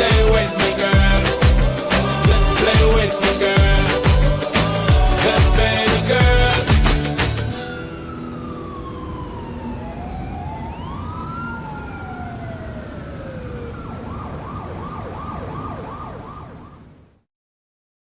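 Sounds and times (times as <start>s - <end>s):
siren wailing and yelping: 7.6s - 17.0s.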